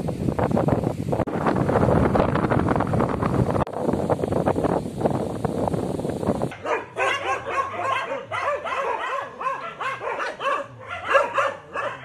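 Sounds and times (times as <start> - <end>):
wind on microphone: 0.0 - 12.0
dogs barking: 6.5 - 12.0.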